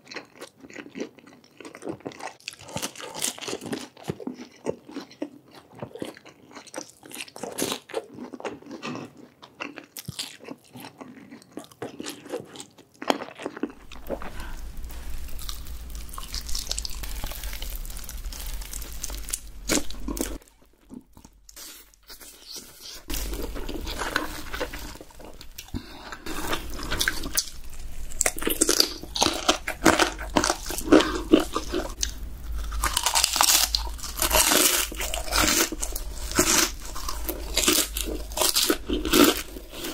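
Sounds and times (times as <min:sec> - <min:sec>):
crunching crisp fried food: 0:00.0 - 0:39.9
steady low hum: 0:13.7 - 0:22.0, 0:22.8 - 0:39.9.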